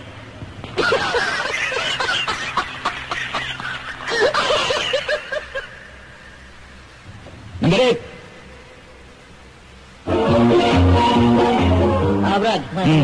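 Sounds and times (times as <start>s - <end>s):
person laughing: 0.8s - 5.7s.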